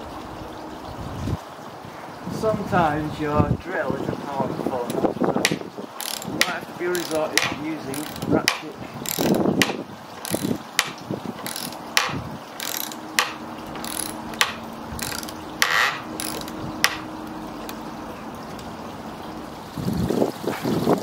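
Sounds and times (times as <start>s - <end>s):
hand ratchet clicking: 4.9s - 17.8s.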